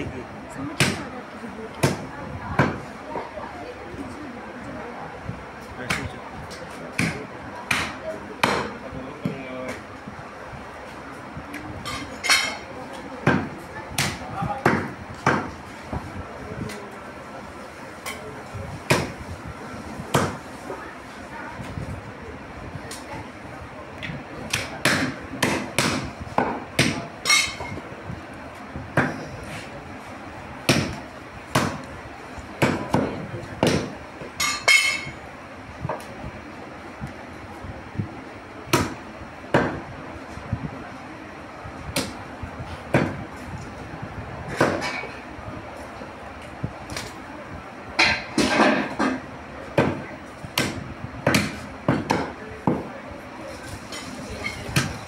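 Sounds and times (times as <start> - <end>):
cleaver chopping on wooden block: 30.7 - 31.8, 50.6 - 52.8.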